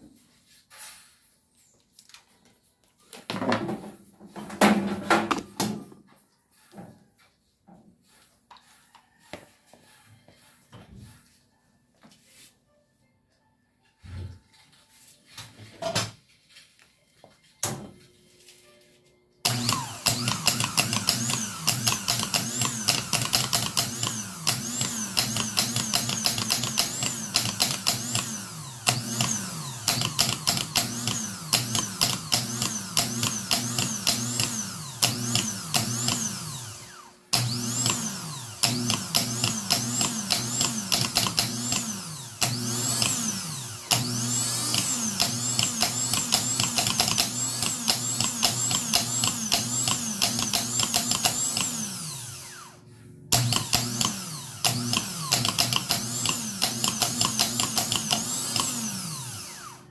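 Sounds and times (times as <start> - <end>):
starter motor whining: 19.4 - 59.9.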